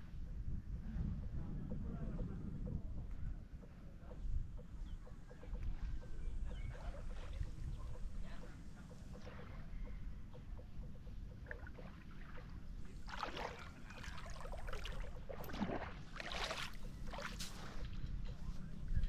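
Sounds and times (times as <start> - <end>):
wind rumble on microphone: 0.0 - 19.0
small waves lapping on shore: 11.4 - 18.1.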